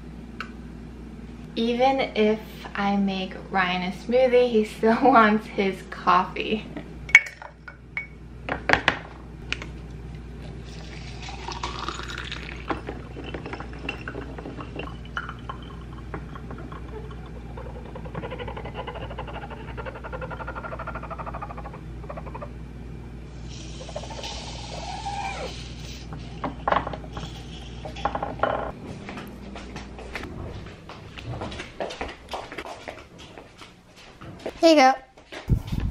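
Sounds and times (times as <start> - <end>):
hot water pouring: 10.6 - 18.1.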